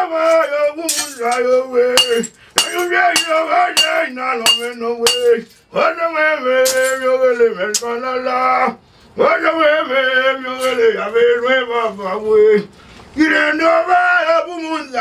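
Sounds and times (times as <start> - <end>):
glass clinks: 0.9 - 1.4, 2.0 - 5.5.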